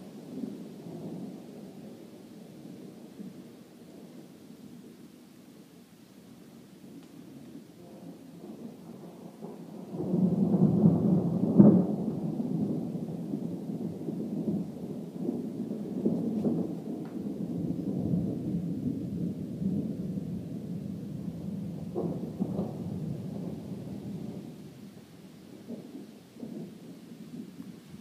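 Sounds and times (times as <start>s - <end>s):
thunder rumble: 6.8s - 28.0s
loud thunder crack: 8.4s - 24.9s.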